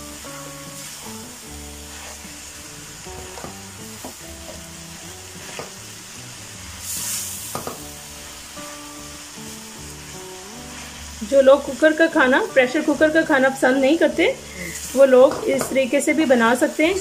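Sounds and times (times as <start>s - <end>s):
meat sizzling in oil: 0.0s - 17.0s
spatula scraping and tapping pan: 3.1s - 4.6s, 5.4s - 5.8s.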